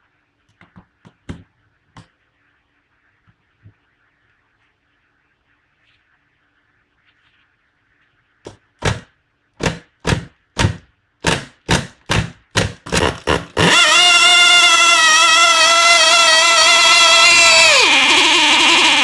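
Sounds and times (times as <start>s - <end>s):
model engine starting bursts: 13.0s - 17.9s
model engine high-pitched buzz: 13.2s - 19.0s.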